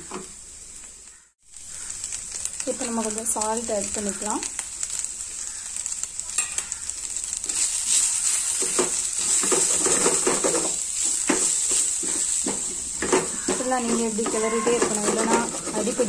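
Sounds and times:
food sizzling in a metal pan: 0:00.0 - 0:16.0
wooden spatula stirring and scraping: 0:07.0 - 0:16.0.

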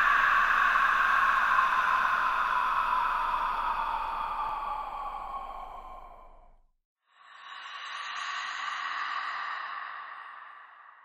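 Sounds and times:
ghostly breathing: 0:00.0 - 0:11.0.

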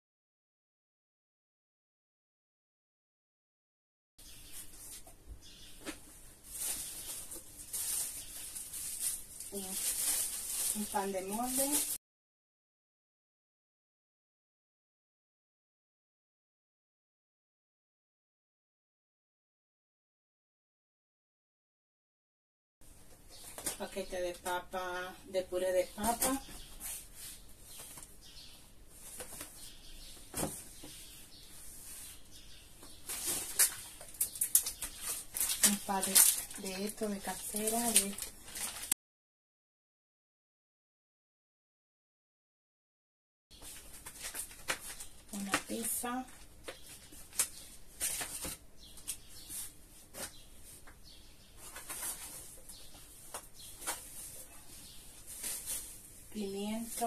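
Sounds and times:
plastic bags rustling: 0:06.4 - 0:12.0, 0:32.8 - 0:39.0, 0:51.6 - 0:56.3
packages clicking and knocking: 0:32.8 - 0:39.0, 0:43.6 - 0:49.2.

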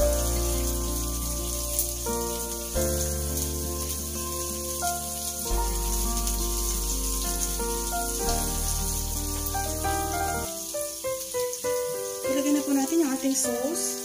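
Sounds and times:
background music with deep bass: 0:00.0 - 0:10.8
onion and garlic sizzling in oil: 0:00.0 - 0:14.0.

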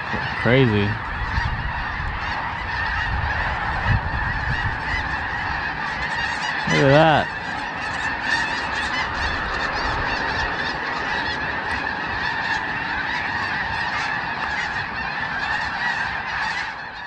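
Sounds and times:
flock of geese honking: 0:00.0 - 0:17.0.

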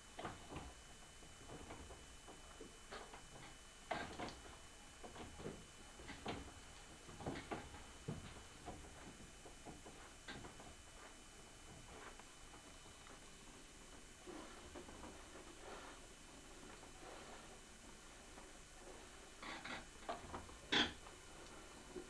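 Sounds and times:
potter's wheel clicks and knocks: 0:19.4 - 0:21.0.

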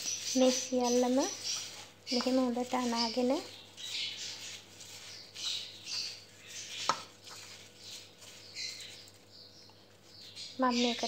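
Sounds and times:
squelching and rubbing of paste: 0:00.0 - 0:11.0.

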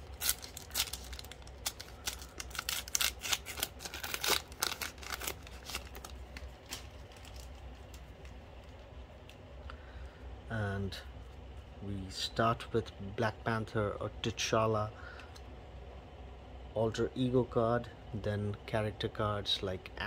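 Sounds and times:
foil wrapper crinkling and tearing: 0:00.0 - 0:08.9.

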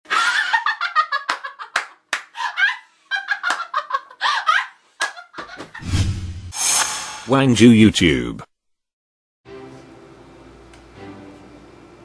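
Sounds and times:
woman laughing hard: 0:00.1 - 0:05.8
sharp hand claps: 0:01.3 - 0:02.3.

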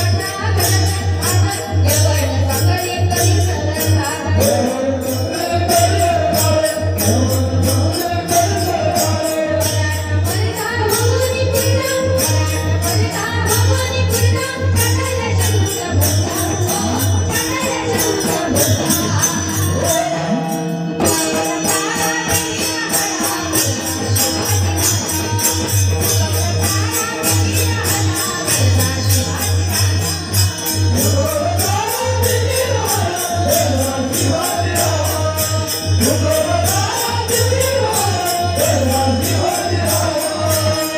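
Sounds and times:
jingling percussion: 0:00.0 - 0:40.9.

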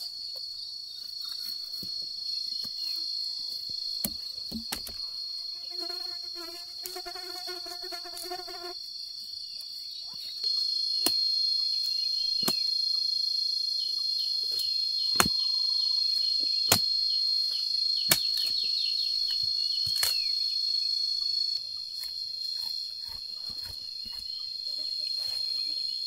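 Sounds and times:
high-pitched insect drone: 0:10.3 - 0:21.8, 0:22.4 - 0:26.0.

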